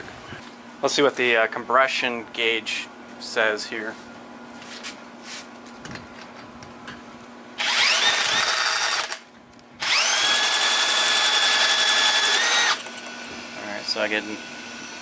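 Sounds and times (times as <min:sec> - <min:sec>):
cordless drill whining: 0:07.6 - 0:09.2, 0:09.8 - 0:15.0.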